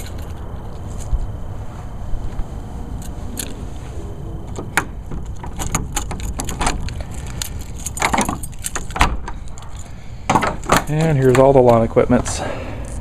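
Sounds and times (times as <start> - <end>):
keys jangling against padlock: 5.6 - 10.0.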